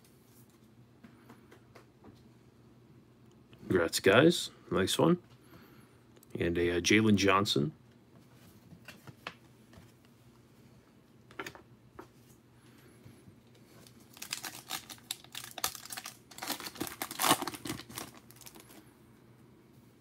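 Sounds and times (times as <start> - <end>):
foil wrapper tearing: 14.0 - 18.8.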